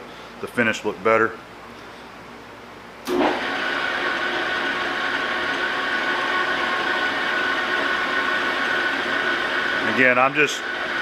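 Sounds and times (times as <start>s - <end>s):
metal lathe humming and whining: 3.1s - 11.0s.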